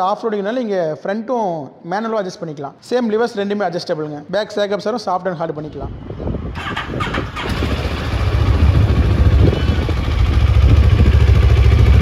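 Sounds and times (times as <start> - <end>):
motorcycle engine starting and running: 6.6 - 12.0.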